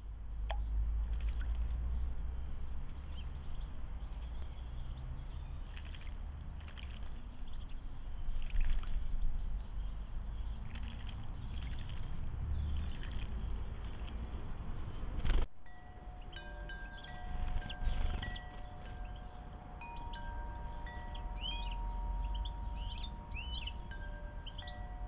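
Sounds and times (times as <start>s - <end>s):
bird splashing water: 0.5s - 1.9s, 5.5s - 9.2s, 10.5s - 14.5s.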